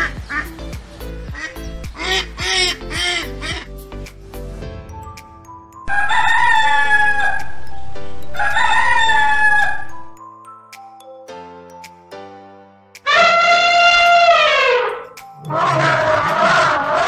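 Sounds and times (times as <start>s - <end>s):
background music with held notes: 0.0s - 17.0s
rooster crowing: 5.9s - 7.5s, 8.4s - 9.9s.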